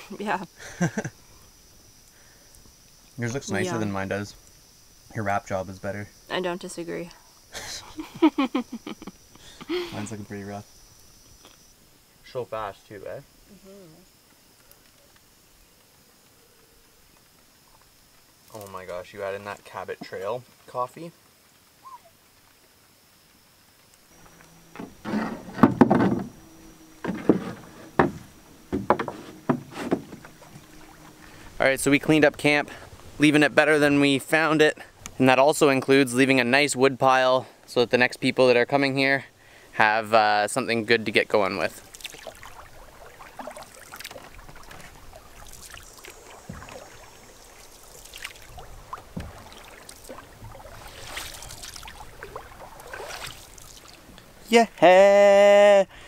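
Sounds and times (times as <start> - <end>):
water trickling: 0.0 - 37.3, 39.0 - 55.3
paddle dipping and swishing: 24.0 - 35.2, 41.4 - 54.5
canoe knocks and thumps: 24.2 - 31.0, 46.2 - 47.3, 48.5 - 53.3
light knocks: 24.7 - 30.7.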